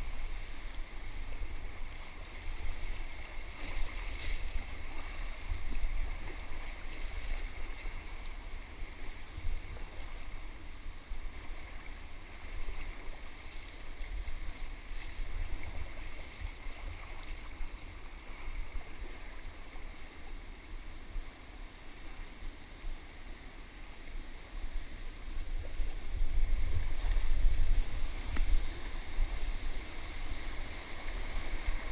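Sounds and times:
whitewater rushing and splashing: 0:25.4 - 0:31.9.

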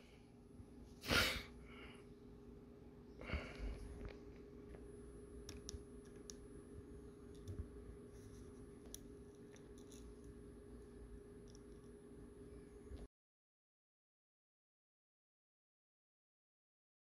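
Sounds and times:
faint steady hum: 0:00.0 - 0:13.1
small faint clicks: 0:04.0 - 0:06.4, 0:11.4 - 0:12.0.

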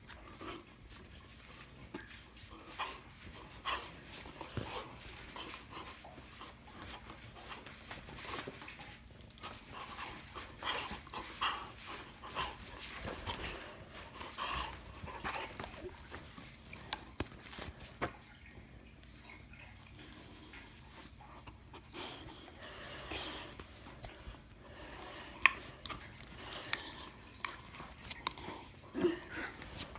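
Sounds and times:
dog panting: 0:00.0 - 0:17.9.

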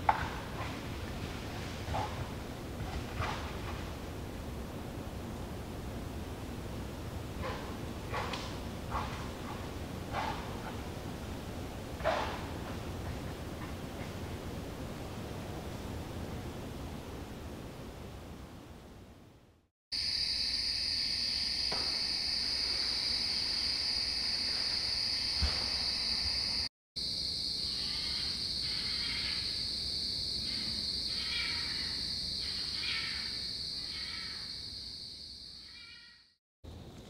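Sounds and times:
insect rhythmic rasping calls: 0:20.0 - 0:36.4
crickets trilling: 0:20.0 - 0:37.0.

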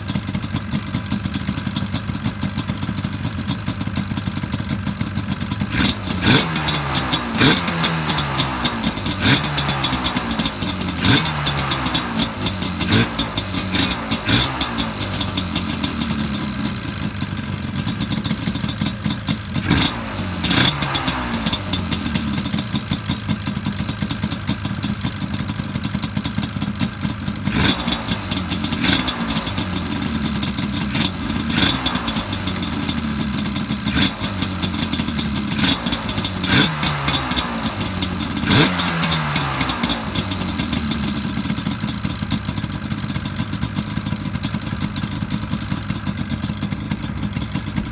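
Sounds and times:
two-stroke engine idling and revving: 0:00.0 - 0:47.9.

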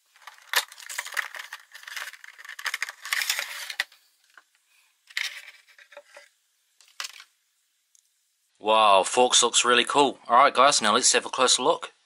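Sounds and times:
plastic packaging crinkling: 0:00.0 - 0:07.3.

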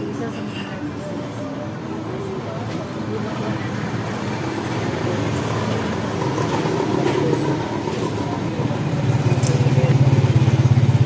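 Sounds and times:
vehicle engine running: 0:04.3 - 0:11.0.

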